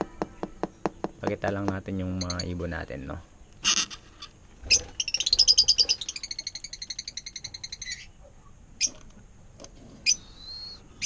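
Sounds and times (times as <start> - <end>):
lovebirds chirping: 0.0 - 9.4, 10.0 - 11.0
bird whistle: 4.7 - 8.1, 10.0 - 11.0.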